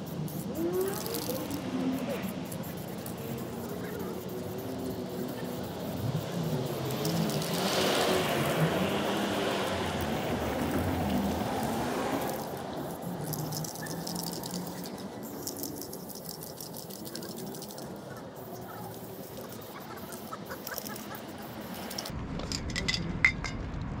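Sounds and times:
broad rushing hiss: 0:00.0 - 0:20.4
spray paint can rattling: 0:00.0 - 0:23.0.

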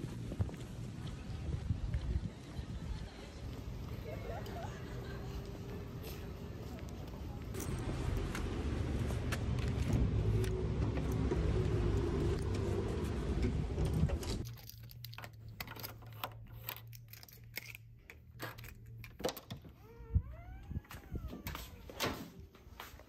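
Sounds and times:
footsteps: 0:00.0 - 0:13.3, 0:20.8 - 0:23.0.

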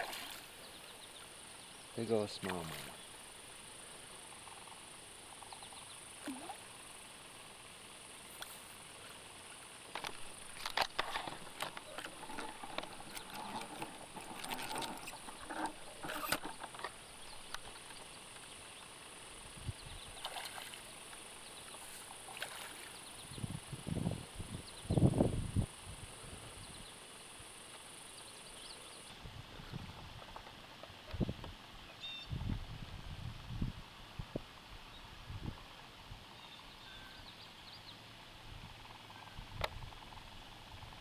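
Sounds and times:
rustling and light splashes: 0:00.0 - 0:01.3, 0:02.3 - 0:03.0, 0:08.3 - 0:18.4, 0:20.1 - 0:23.2
steady high hiss: 0:00.0 - 0:41.0.

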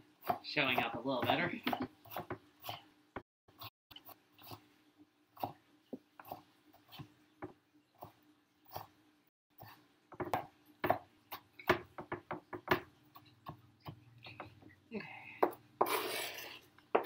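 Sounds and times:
knife chopping on plastic board: 0:00.2 - 0:03.7, 0:10.1 - 0:14.6.

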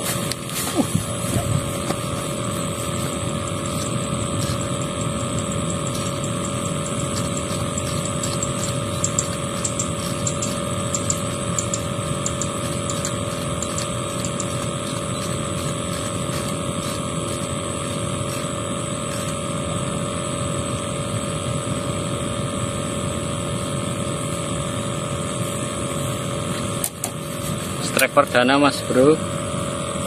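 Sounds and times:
steady mechanical drone: 0:00.0 - 0:30.0.

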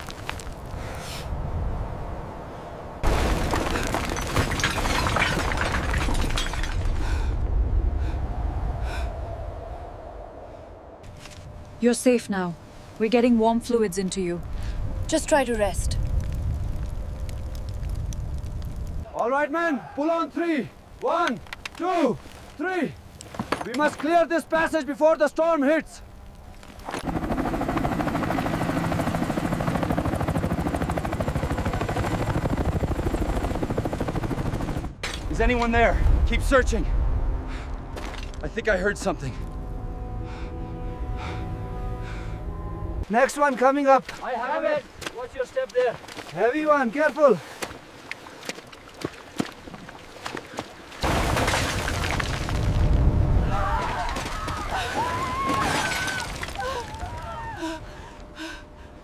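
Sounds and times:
rubble crashing and cracking: 0:03.0 - 0:07.3, 0:38.0 - 0:38.4, 0:48.9 - 0:57.5
deep rumble: 0:05.0 - 0:11.8, 0:13.9 - 0:19.1, 0:35.2 - 0:43.1, 0:51.9 - 0:54.0
helicopter rotor chop: 0:27.0 - 0:35.0.

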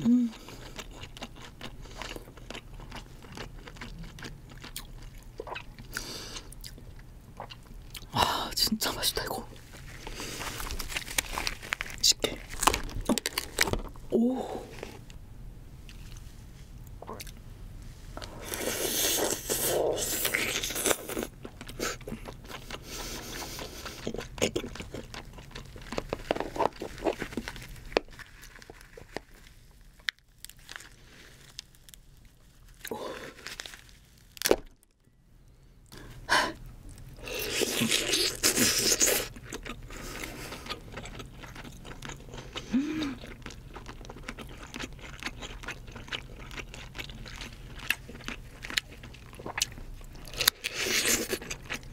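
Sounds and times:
chewing: 0:00.3 - 0:08.1, 0:18.2 - 0:32.0, 0:36.9 - 0:51.9.

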